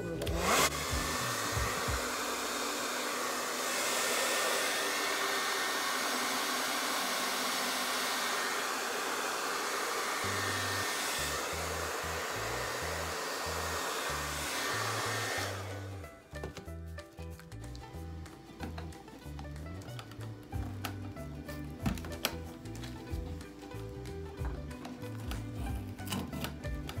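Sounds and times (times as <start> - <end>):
hot-air blower whooshing: 0.0 - 16.7.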